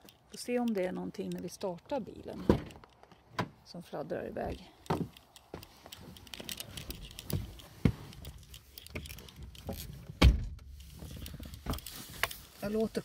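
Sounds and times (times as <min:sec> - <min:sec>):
people rustling in a car: 0:04.4 - 0:13.0
car door shutting: 0:10.1 - 0:10.7.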